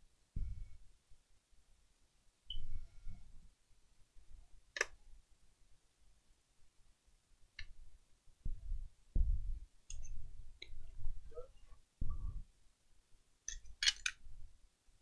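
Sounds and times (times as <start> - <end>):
dull low bumps: 8.4 - 9.6.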